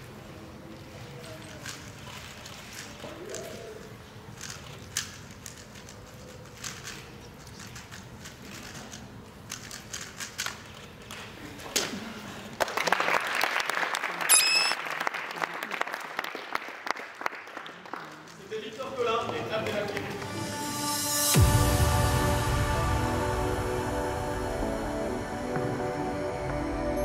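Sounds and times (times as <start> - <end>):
audience applause and cheering: 12.6 - 18.3.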